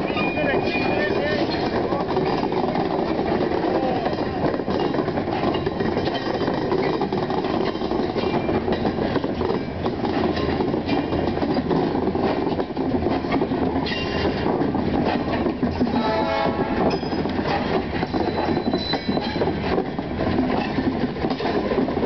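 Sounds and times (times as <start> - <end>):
freight train rolling past: 0.0 - 22.0
wheels clanking over rail joints: 0.0 - 22.0
high metallic wheel squeal: 18.1 - 19.4.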